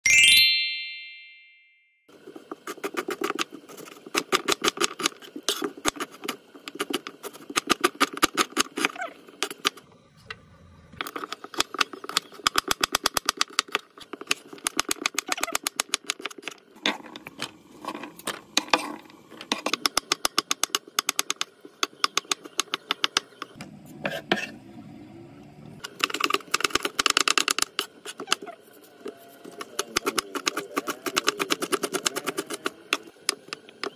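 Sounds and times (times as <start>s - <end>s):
chime: 0.0s - 1.9s
knife chopping on wooden board: 29.5s - 33.5s.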